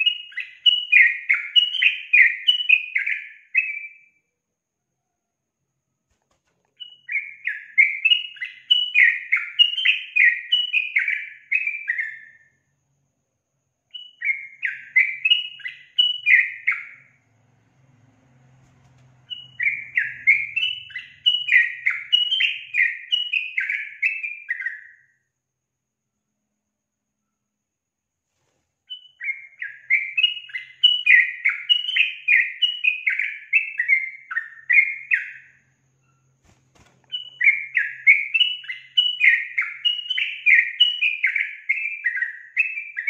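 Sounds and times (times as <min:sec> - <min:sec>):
bulbul singing: 0:00.0 - 0:04.0, 0:06.8 - 0:12.4, 0:13.9 - 0:17.2, 0:19.1 - 0:25.1, 0:28.9 - 0:43.0.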